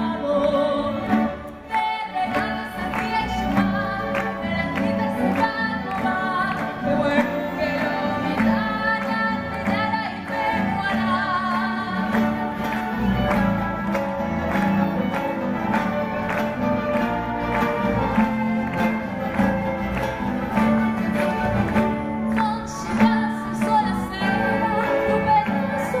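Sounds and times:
young woman singing: 0:00.0 - 0:13.3, 0:22.2 - 0:26.0
string orchestra playing: 0:00.0 - 0:26.0.

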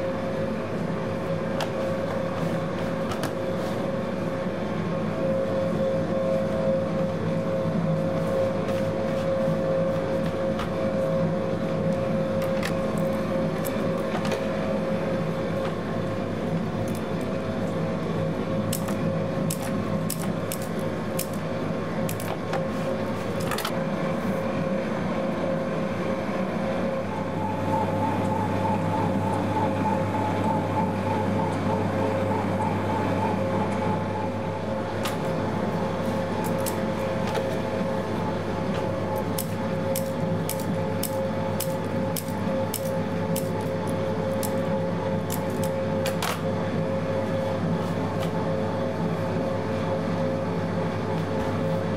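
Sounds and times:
pasta extruder motor hum: 0:00.0 - 0:51.9
wavering higher tone: 0:26.9 - 0:34.8.

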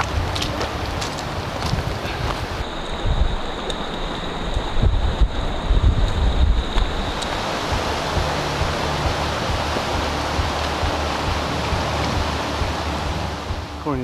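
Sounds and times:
creek water rushing over rocks: 0:00.0 - 0:02.6, 0:06.8 - 0:14.0
wind buffeting microphone: 0:00.0 - 0:14.0.

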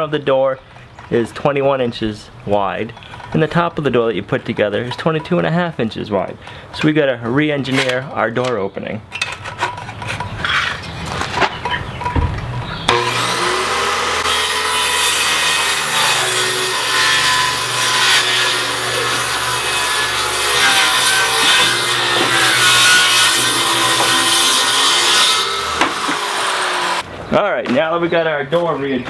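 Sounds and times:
circular saw cutting wood: 0:12.9 - 0:27.1.

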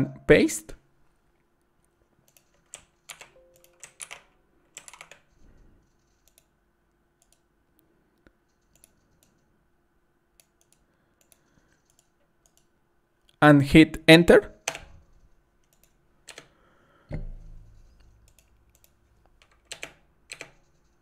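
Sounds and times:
keyboard and mouse clicks: 0:02.2 - 0:06.5, 0:07.2 - 0:07.5, 0:08.5 - 0:09.4, 0:10.4 - 0:12.7, 0:14.6 - 0:16.5, 0:17.1 - 0:21.0.

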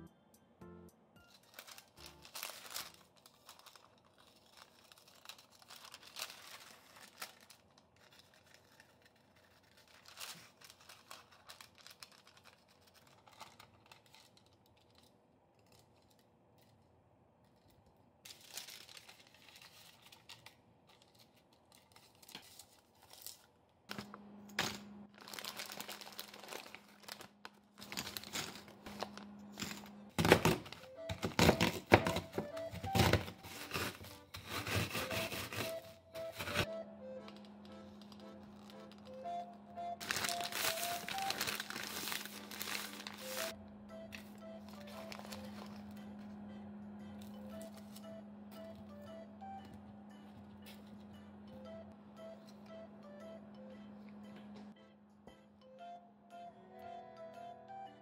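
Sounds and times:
baking paper rustling and tearing: 0:01.3 - 0:16.2, 0:18.3 - 0:24.0, 0:24.7 - 0:36.7, 0:37.3 - 0:39.2, 0:40.0 - 0:43.6, 0:44.2 - 0:45.9
steady low hum: 0:27.0 - 0:30.9, 0:41.4 - 0:57.8.

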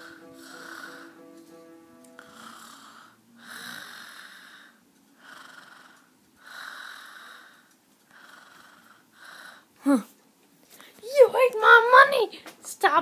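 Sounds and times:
raspy wheezy breathing: 0:00.0 - 0:01.3, 0:02.2 - 0:09.7.

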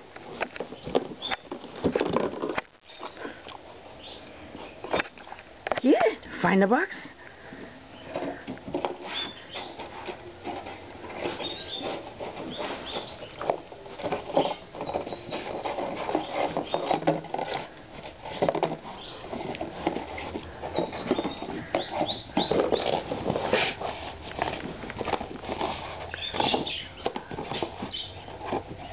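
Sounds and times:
pig nosing cardboard box: 0:08.0 - 0:28.9.

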